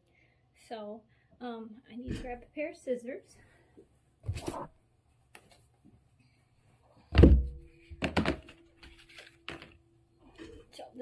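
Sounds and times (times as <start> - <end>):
box thunking on wooden table: 7.1 - 8.6.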